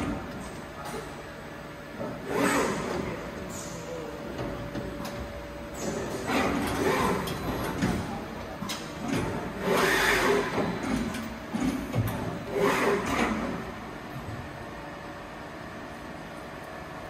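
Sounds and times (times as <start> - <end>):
lathe mechanical surges: 9.4 - 10.8, 12.4 - 13.7.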